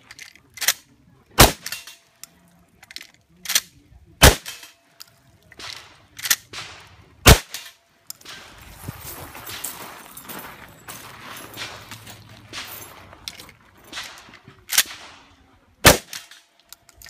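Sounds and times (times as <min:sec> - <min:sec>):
shotgun shots: 0:01.4 - 0:02.0, 0:04.2 - 0:04.7, 0:05.6 - 0:08.6, 0:13.9 - 0:16.5.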